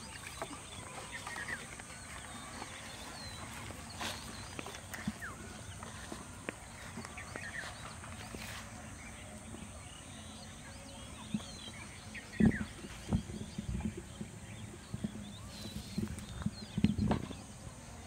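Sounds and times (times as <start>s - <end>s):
footsteps on dirt path: 0.0s - 10.1s
birds chirping: 0.0s - 18.0s.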